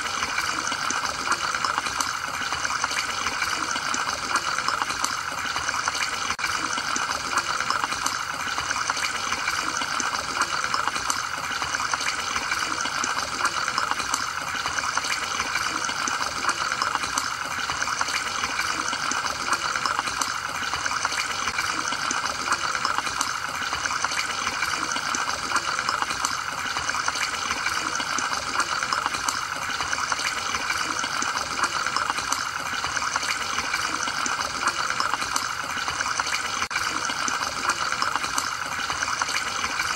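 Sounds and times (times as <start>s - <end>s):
aquarium filter bubbling: 0.0s - 39.9s.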